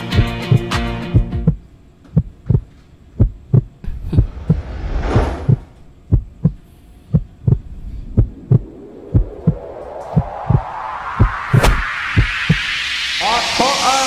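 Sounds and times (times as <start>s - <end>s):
heartbeat thumps: 0.1s - 12.6s
rising whoosh: 3.8s - 6.1s, 7.4s - 14.0s.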